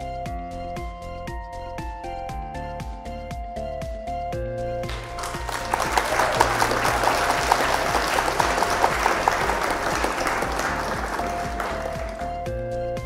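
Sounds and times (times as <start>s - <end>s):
background music: 0.0s - 13.0s
crowd applauding: 4.8s - 12.6s.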